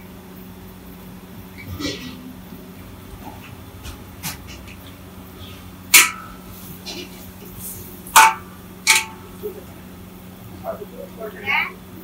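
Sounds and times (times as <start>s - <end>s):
steady low hum: 0.0s - 12.0s
metal clank with ringing: 6.0s - 6.4s, 8.2s - 9.3s.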